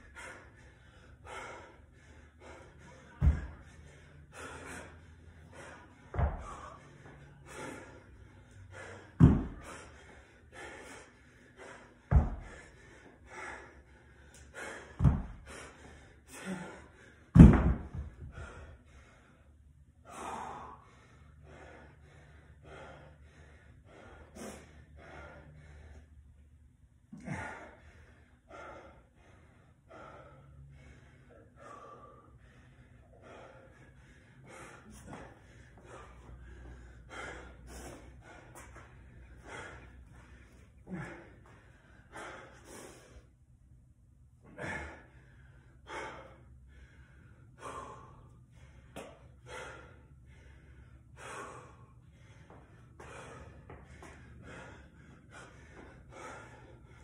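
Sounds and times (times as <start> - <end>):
heavy gasping breathing: 0.0 - 26.4, 27.1 - 43.4, 44.4 - 57.0
dumbbell thudding on rubber mat: 6.1 - 6.6, 9.2 - 9.6, 12.1 - 12.5, 15.0 - 15.4, 17.3 - 18.2.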